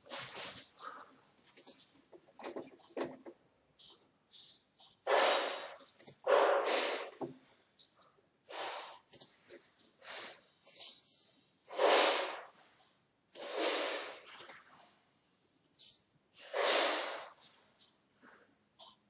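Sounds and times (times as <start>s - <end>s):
person breathing close to microphone: 13.4s - 14.4s, 16.4s - 17.6s.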